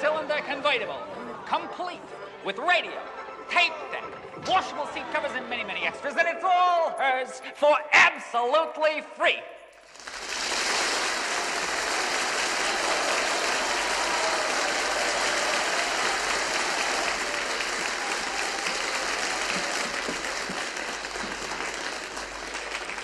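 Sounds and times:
crowd applauding: 9.8s - 23.0s.

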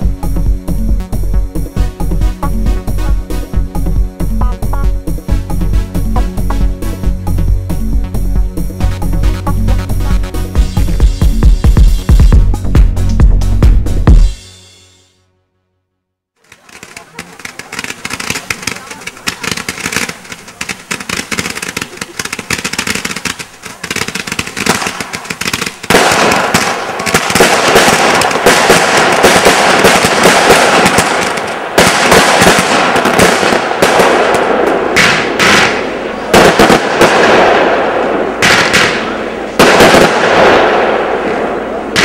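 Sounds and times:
fireworks popping and crackling: 16.4s - 42.0s.

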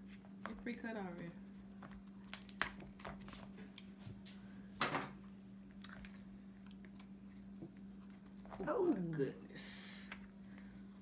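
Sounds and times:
faint steady hum: 0.0s - 11.0s
crab shell crackling: 2.0s - 3.2s.

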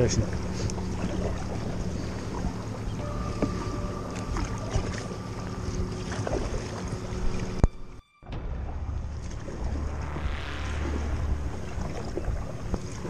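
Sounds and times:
water lapping against hull: 0.0s - 13.0s.

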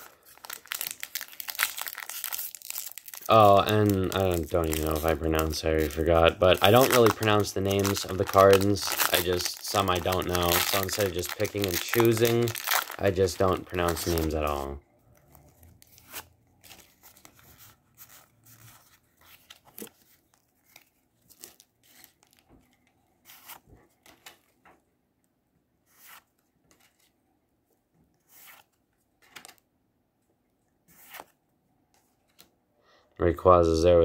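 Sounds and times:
trading cards rustling and flicking: 0.0s - 24.7s, 28.2s - 29.6s, 30.9s - 31.4s.

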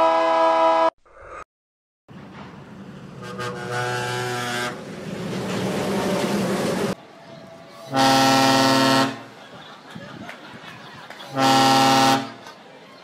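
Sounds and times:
monorail horn chord: 0.0s - 0.9s, 3.2s - 4.8s, 7.8s - 9.3s, 11.3s - 12.4s
train horn chord: 0.0s - 0.9s, 3.2s - 4.8s, 7.8s - 9.2s, 11.3s - 12.4s.

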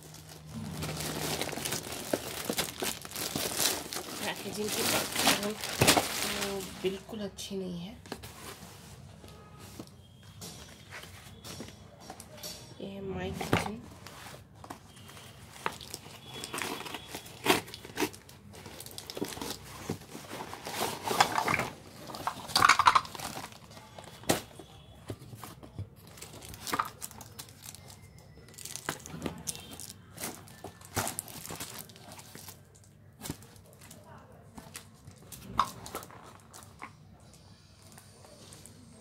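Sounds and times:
cardboard packaging rustling and tearing: 0.0s - 7.2s, 13.4s - 36.9s.

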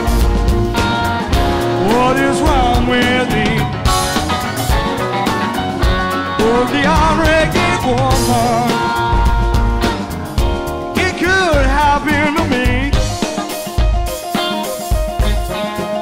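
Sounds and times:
live band instrumental jam: 0.0s - 16.0s
bending wavering lead notes: 1.2s - 9.9s.

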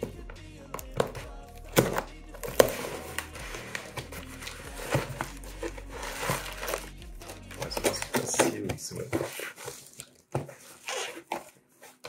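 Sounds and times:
plastic wrapping crinkling: 1.6s - 12.0s
cardboard box being torn open: 1.7s - 6.9s.

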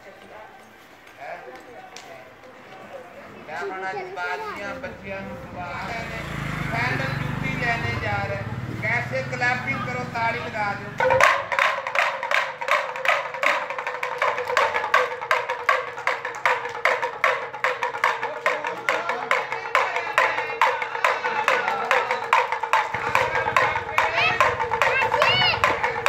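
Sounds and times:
pellet drum rattling: 11.0s - 26.0s.

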